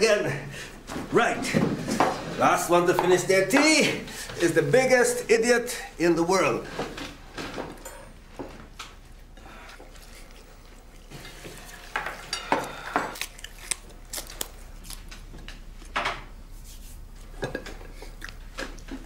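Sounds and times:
cutlery and crockery clinking: 7.7 - 8.2.

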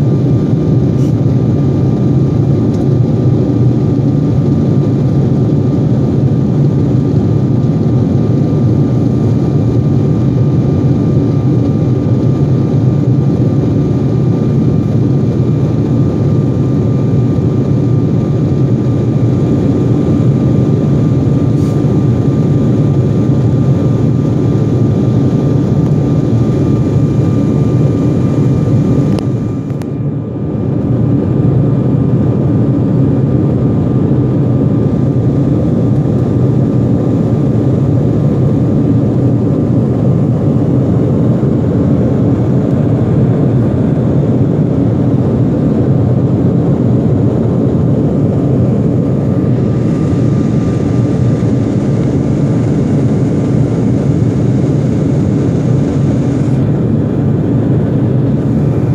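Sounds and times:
faint steady whine: 0.0 - 58.9
jet cabin engine roar: 0.0 - 58.9.

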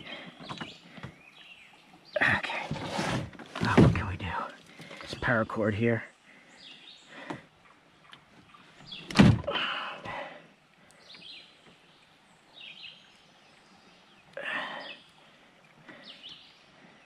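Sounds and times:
short scrape: 2.7 - 3.4
loud thump: 9.1 - 9.5.

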